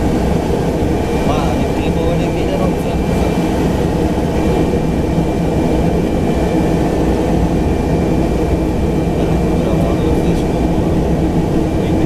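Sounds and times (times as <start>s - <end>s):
turboprop engine drone: 0.0s - 12.0s.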